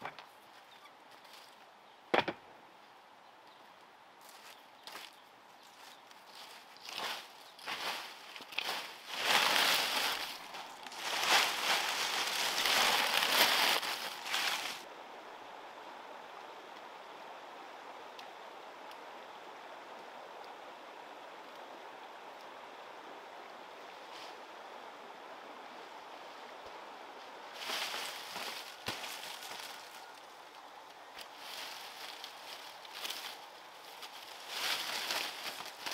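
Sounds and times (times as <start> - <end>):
faint outdoor background hiss: 0.0 - 35.9
dry leaves and straw crackling: 4.2 - 14.9, 27.4 - 35.9.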